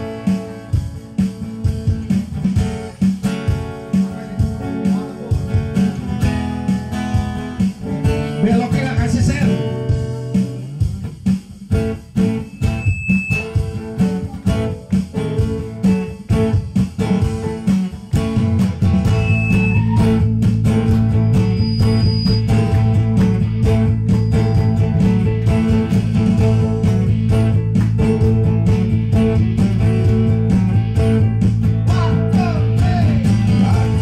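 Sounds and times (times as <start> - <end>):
acoustic guitar strumming: 0.0 - 34.0.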